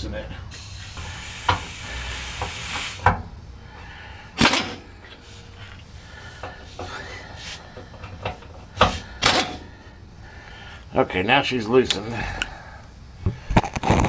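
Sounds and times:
air hissing: 0.3s - 10.9s
impact wrench bursts on bolts: 0.6s - 3.3s, 4.4s - 5.3s, 6.4s - 9.7s.

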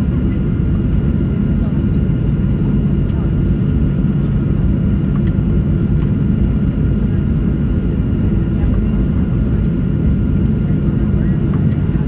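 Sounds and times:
low aircraft cabin rumble: 0.0s - 12.0s.

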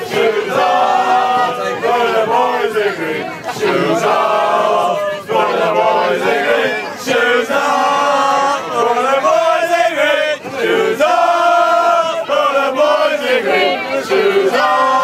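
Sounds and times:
men chanting together: 0.0s - 15.0s.

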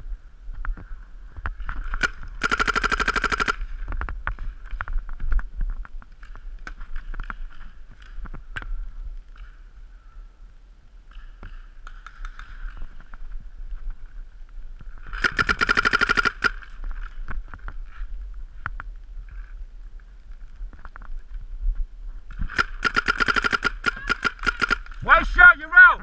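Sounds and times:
paintball marker rapid fire: 2.0s - 3.7s, 15.2s - 16.7s, 22.5s - 25.0s.

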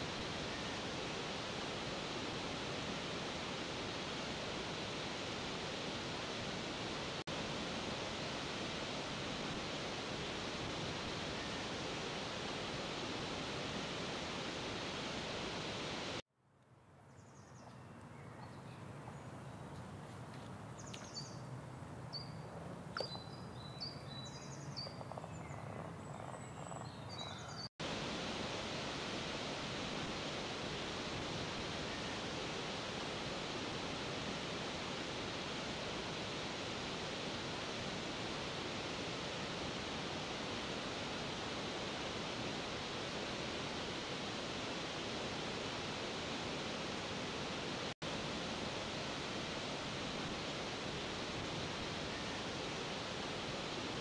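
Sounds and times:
bird chirps: 22.1s - 27.7s.

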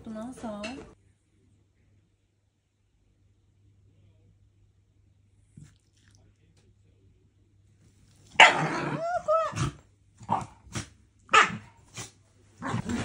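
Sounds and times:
dog barking: 8.4s - 9.6s, 10.3s - 12.1s
dog growling: 8.4s - 13.0s.

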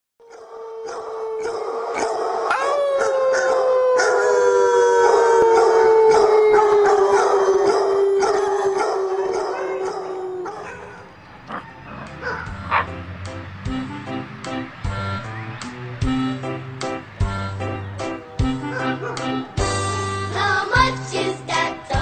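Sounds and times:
dog howling: 0.2s - 12.9s
dogs barking and yipping: 0.3s - 4.4s, 5.0s - 13.0s, 18.5s - 19.6s.

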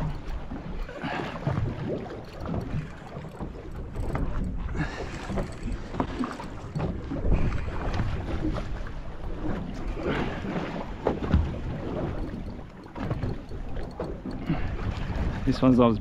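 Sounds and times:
water slapping against boat hull: 0.0s - 16.0s
small knocks: 11.0s - 14.6s.

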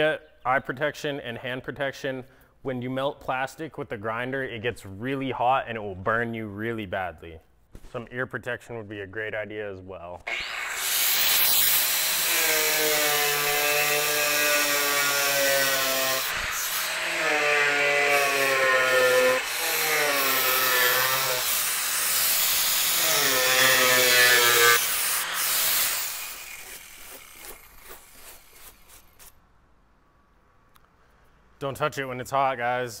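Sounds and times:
angle grinder cutting plastic: 10.3s - 29.4s.

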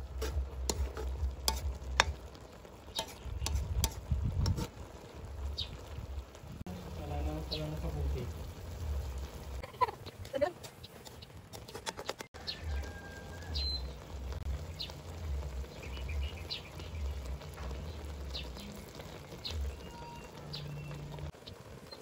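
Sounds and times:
metal spatula scraping in wok: 0.0s - 2.3s, 2.9s - 4.9s, 10.0s - 12.3s
birds chirping: 1.1s - 3.8s, 5.3s - 6.0s, 6.7s - 11.4s, 12.0s - 22.0s.

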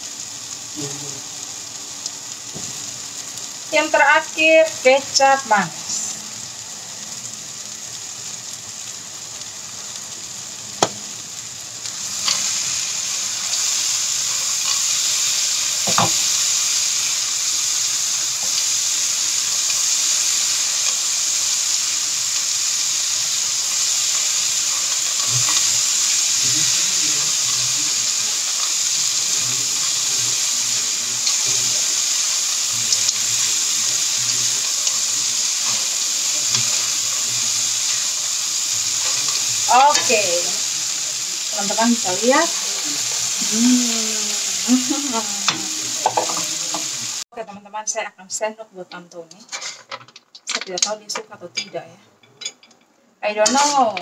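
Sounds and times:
food sizzling in a frying pan: 0.0s - 54.0s
spatula scraping pan: 53.4s - 54.0s.

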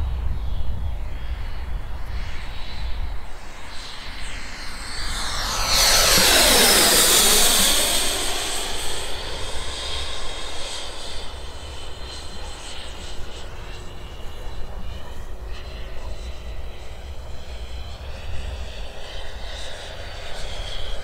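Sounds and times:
model jet fan whining: 3.2s - 15.4s.

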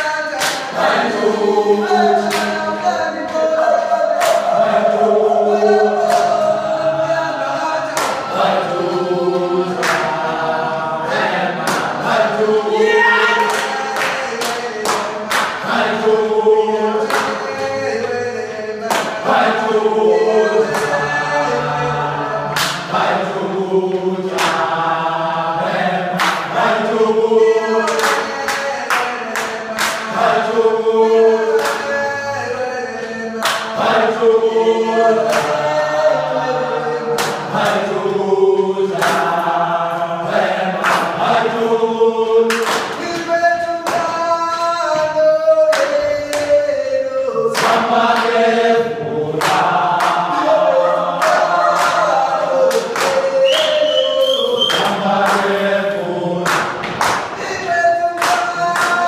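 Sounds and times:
group singing in chorus: 0.0s - 59.0s
sharp hits claps or stamps: 0.3s - 0.8s, 2.2s - 2.7s, 4.1s - 4.8s, 6.0s - 6.4s, 7.9s - 8.4s, 9.8s - 10.3s, 11.6s - 12.2s, 13.4s - 15.8s, 17.0s - 18.2s, 18.8s - 19.3s, 20.7s - 21.0s, 22.5s - 23.0s, 24.3s - 24.8s, 26.1s - 26.7s, 27.8s - 30.3s, 31.5s - 32.0s, 33.0s - 33.8s, 35.3s - 35.7s, 37.2s - 37.8s, 38.9s - 39.6s, 40.8s - 41.4s, 42.5s - 46.6s, 47.5s - 48.4s, 49.4s - 50.5s, 51.2s - 55.6s, 56.4s - 59.0s.

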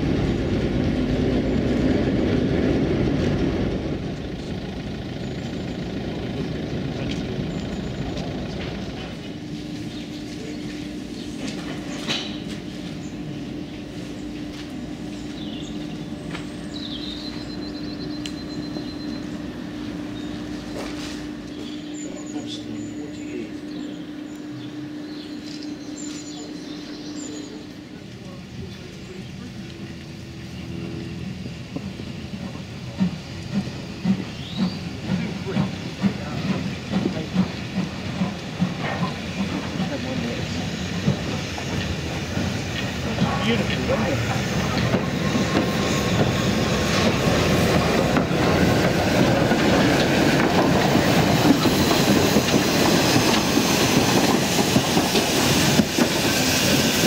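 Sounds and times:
steam locomotive exhaust beats: 0.0s - 57.0s
steady hiss of steam: 31.8s - 57.0s.

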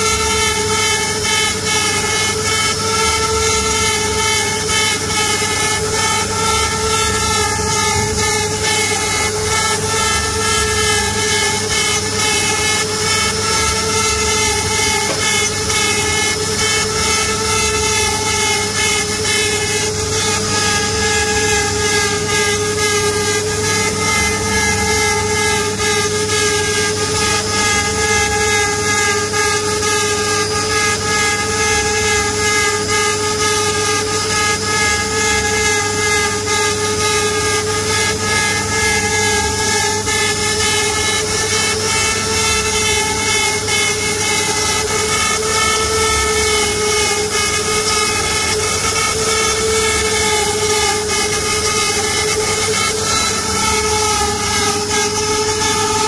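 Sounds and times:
hiss of bit cutting wood: 0.0s - 56.0s
router spindle whining: 0.0s - 56.0s.

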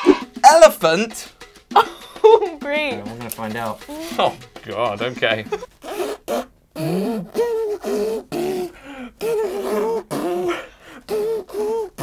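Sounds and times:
man imitating elephant trumpeting: 5.8s - 12.0s.

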